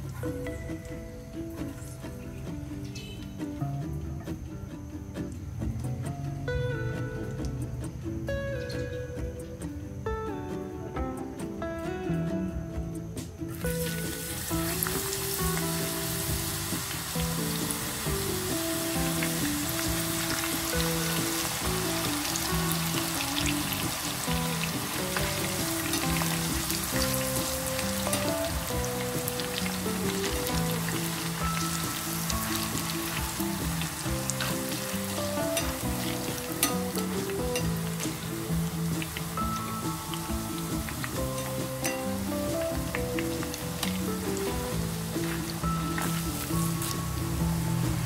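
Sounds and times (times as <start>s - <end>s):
background music with held notes: 0.0s - 48.0s
food sizzling in hot oil: 13.5s - 48.0s.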